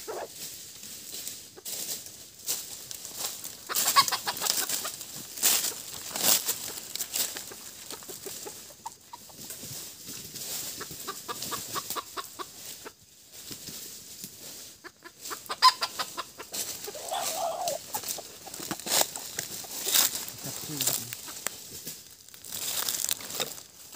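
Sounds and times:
rooster clucking: 0.0s - 0.3s, 3.4s - 9.7s, 10.6s - 13.0s, 14.8s - 21.4s
rustling of dry leaves: 0.0s - 23.9s.

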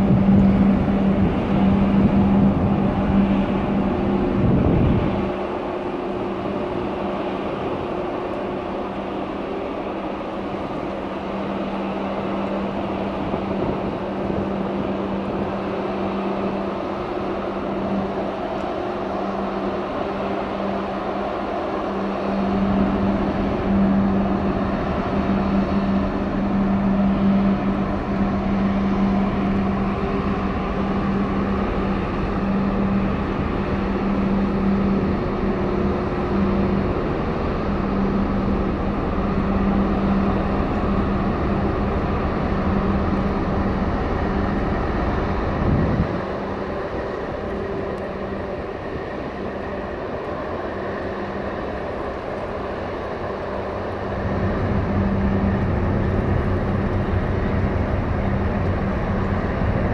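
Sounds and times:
deep rumble: 0.0s - 9.1s, 21.8s - 59.9s
ship machinery hum: 0.0s - 59.9s.

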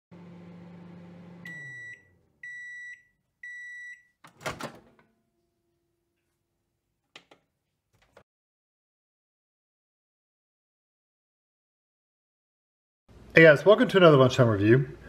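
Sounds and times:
microwave oven humming: 0.1s - 3.6s.

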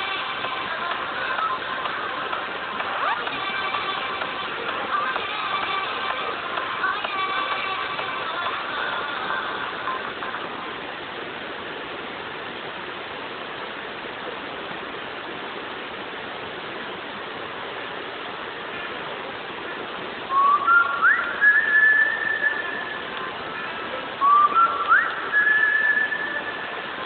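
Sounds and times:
stream water rushing: 0.0s - 27.0s
person whistling: 20.3s - 23.0s, 24.2s - 26.6s.

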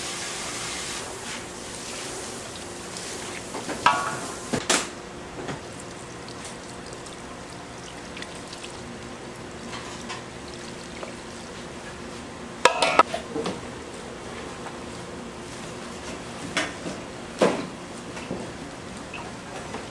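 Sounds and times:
steady low hum: 1.0s - 19.8s
tableware clinking: 12.7s - 13.1s.

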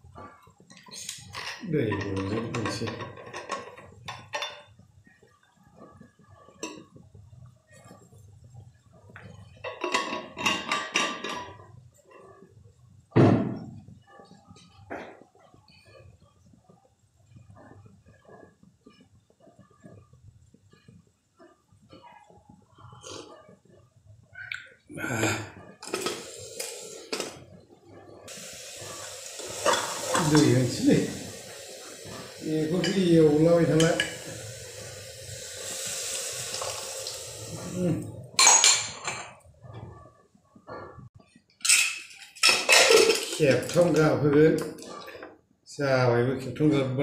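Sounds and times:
loud thump: 13.2s - 13.8s
steam hissing from vent: 25.0s - 27.5s, 28.1s - 39.2s
metal scraping: 28.2s - 39.9s
metal and glass clinking: 38.4s - 39.4s, 41.6s - 43.9s.

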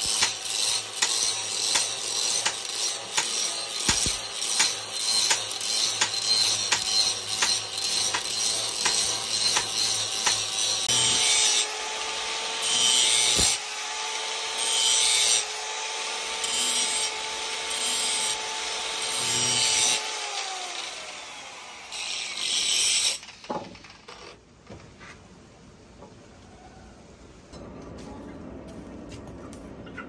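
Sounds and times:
grinding on steel: 0.0s - 11.6s.

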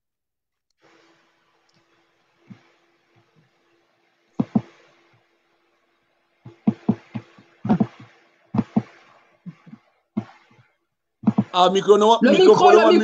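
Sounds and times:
faint steady hum: 0.7s - 13.0s
sharp knocks: 4.4s - 4.8s, 6.5s - 10.4s, 11.2s - 11.6s.

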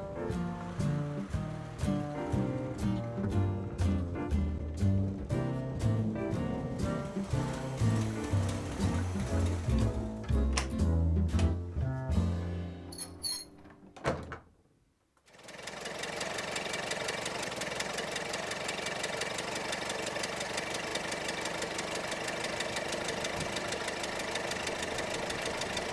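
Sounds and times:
jazz music: 0.0s - 12.9s
car engine running steadily: 15.5s - 25.9s.

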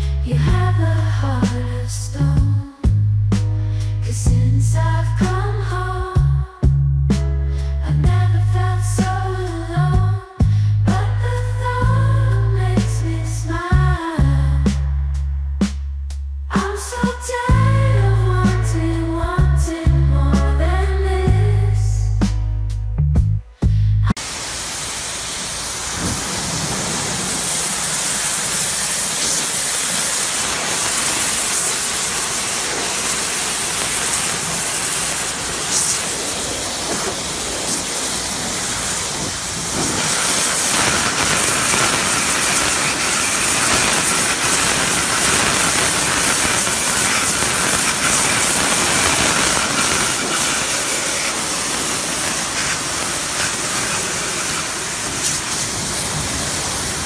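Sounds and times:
pressure washer spray hissing: 24.2s - 57.0s.

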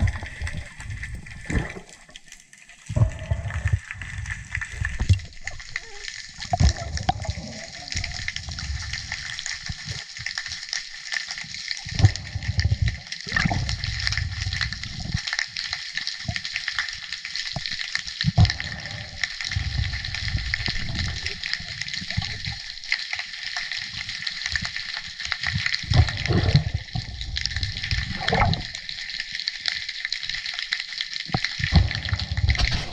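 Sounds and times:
rumbling rushes of water: 0.0s - 2.0s, 25.6s - 28.9s, 31.3s - 32.9s.

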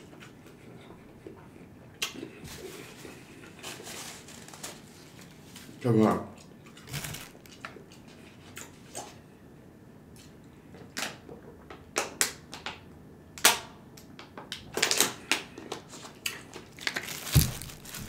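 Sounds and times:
plastic water bottle crackling: 6.8s - 7.6s, 16.8s - 18.0s
dull thump: 17.3s - 18.0s.

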